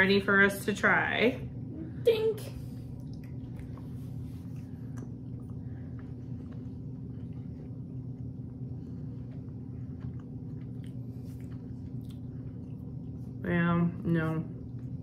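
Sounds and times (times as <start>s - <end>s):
steady low hum: 0.0s - 15.0s
people chewing candy: 2.9s - 13.4s.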